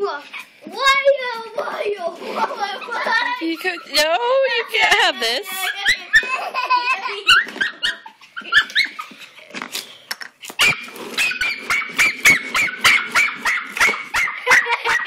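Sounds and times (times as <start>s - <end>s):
puppy barking: 10.6s - 15.0s.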